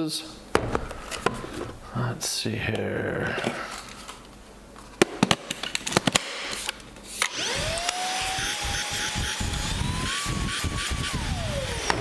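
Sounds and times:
vacuum motor whine: 7.2s - 12.0s.

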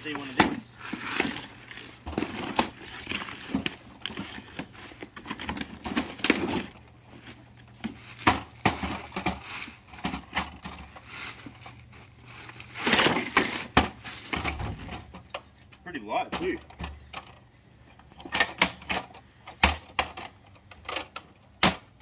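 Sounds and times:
plastic wrapping crinkling: 0.0s - 14.6s.

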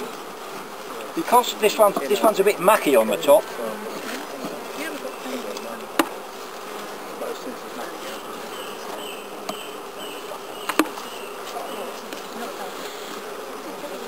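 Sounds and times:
honeybees buzzing: 0.0s - 14.0s.

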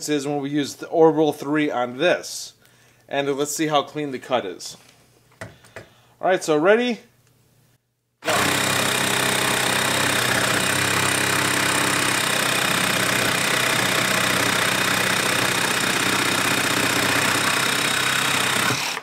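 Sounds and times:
jigsaw cutting wood: 8.2s - 19.0s.

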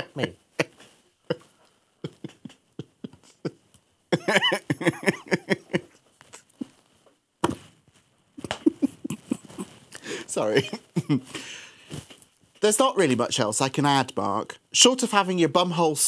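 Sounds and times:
stifled laughter: 0.0s - 6.8s, 8.4s - 11.4s.

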